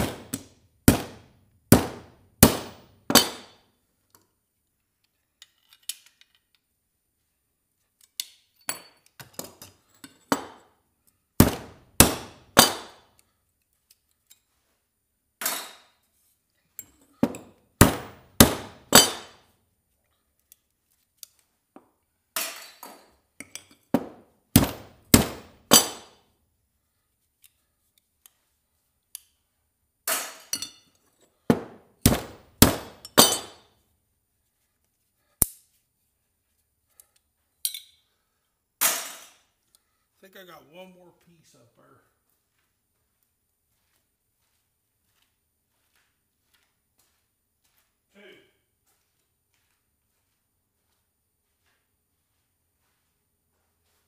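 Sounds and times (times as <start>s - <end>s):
hammer striking metal scrap: 0.0s - 3.6s, 11.4s - 13.1s, 17.2s - 19.4s, 24.6s - 26.2s, 31.5s - 33.7s.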